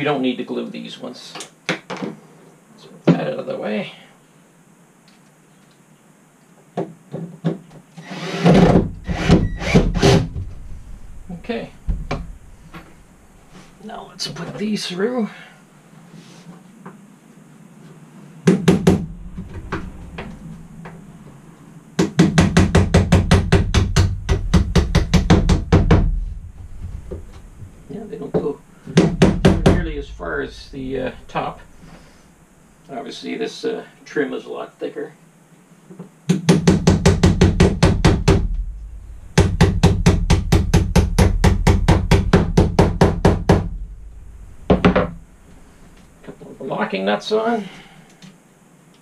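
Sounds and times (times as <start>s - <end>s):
rapid hammer blows on wood: 18.4s - 20.2s, 22.0s - 26.3s, 28.8s - 30.1s, 36.3s - 38.6s, 39.3s - 43.8s.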